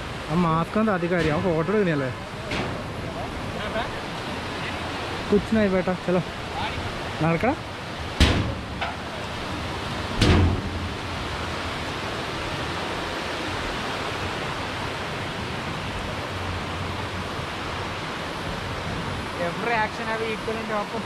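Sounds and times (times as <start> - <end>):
river running over rocks: 0.0 - 21.0
thump: 8.2 - 9.0, 10.2 - 10.9.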